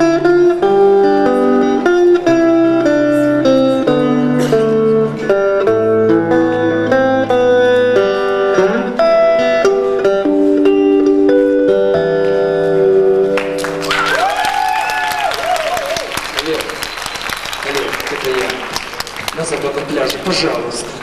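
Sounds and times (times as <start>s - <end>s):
electric guitar melody: 0.0s - 15.8s.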